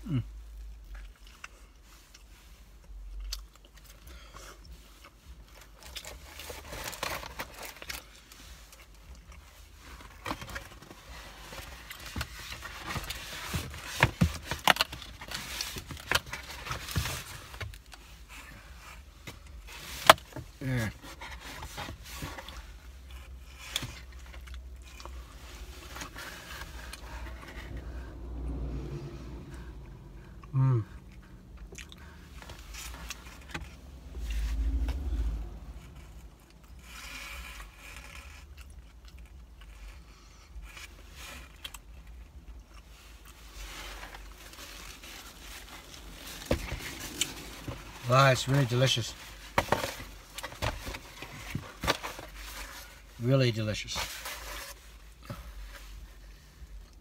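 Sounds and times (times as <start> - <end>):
cardboard box rustling and scraping: 43.7 - 53.1.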